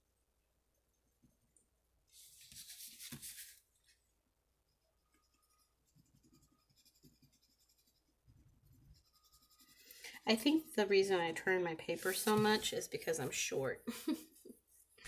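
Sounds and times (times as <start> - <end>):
crayon scratching on paper: 5.2 - 10.7, 11.9 - 13.3.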